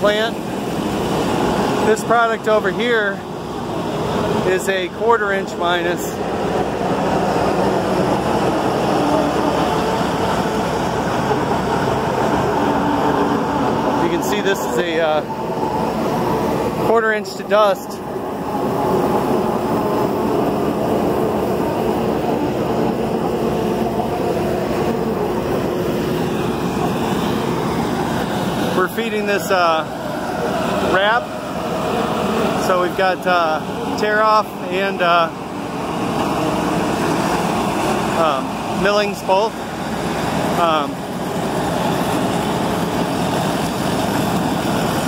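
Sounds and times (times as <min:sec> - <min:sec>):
asphalt pouring off conveyor: 0:24.1 - 0:45.0.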